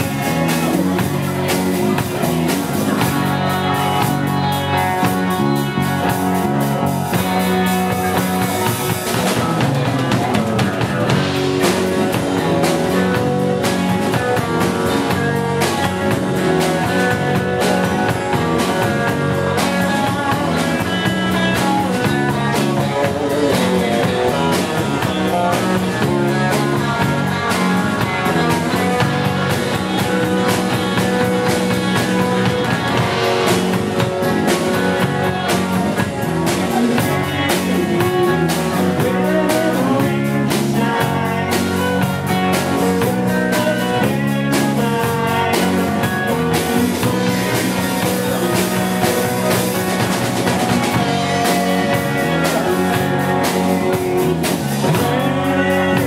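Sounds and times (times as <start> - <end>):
drum kit beat: 0.0 - 56.0
electric bass: 0.0 - 56.0.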